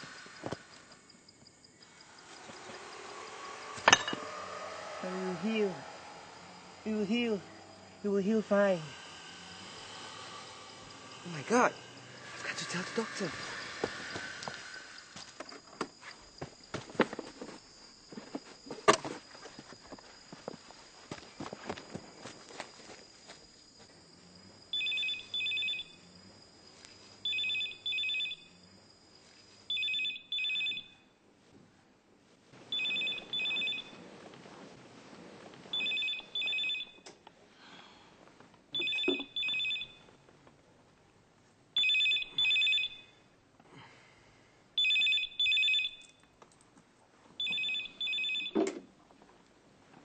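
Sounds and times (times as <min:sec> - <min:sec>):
telephone ringing: 0:24.8 - 0:26.0, 0:27.3 - 0:28.5, 0:29.7 - 0:31.0, 0:32.7 - 0:34.0, 0:35.7 - 0:37.0, 0:38.8 - 0:40.1, 0:41.8 - 0:43.1, 0:44.8 - 0:46.2, 0:47.4 - 0:48.8.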